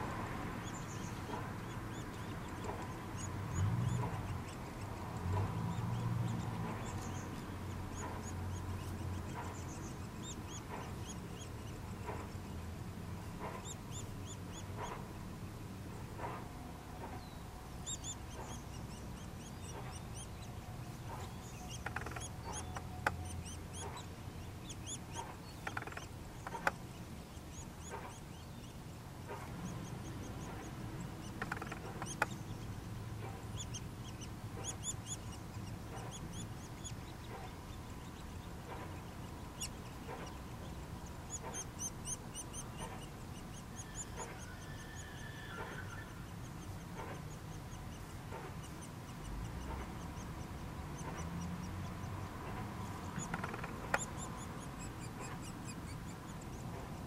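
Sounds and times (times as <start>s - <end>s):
nestlings begging with high notes: 0.0s - 15.1s, 17.3s - 57.0s
sharp clicks: 21.0s - 24.0s, 24.9s - 27.0s, 29.3s - 33.8s, 52.4s - 57.0s.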